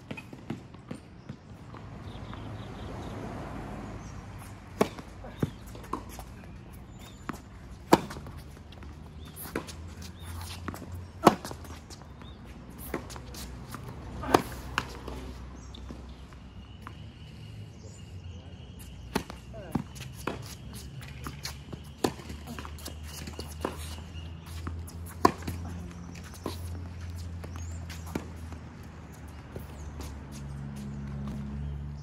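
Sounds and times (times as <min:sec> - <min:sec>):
tennis ball bouncing: 0:04.0 - 0:17.0, 0:18.6 - 0:31.6
tennis racket hitting ball: 0:04.4 - 0:15.3, 0:19.2 - 0:28.5.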